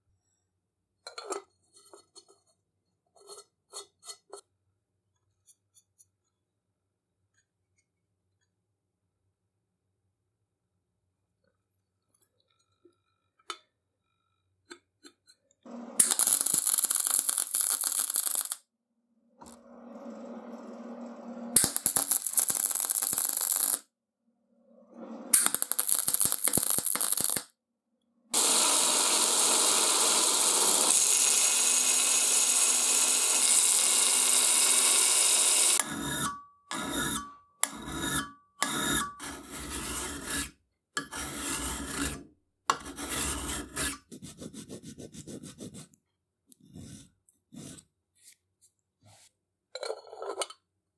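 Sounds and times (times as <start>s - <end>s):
welder sputtering crackle: 16.0s - 18.6s, 21.6s - 23.8s, 25.3s - 27.5s, 28.4s - 35.8s
file rasping across steel: 35.7s - 45.9s.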